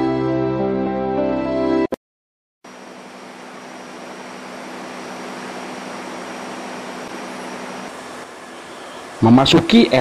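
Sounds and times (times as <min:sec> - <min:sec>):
diesel locomotive engine drone: 0:02.7 - 0:10.0.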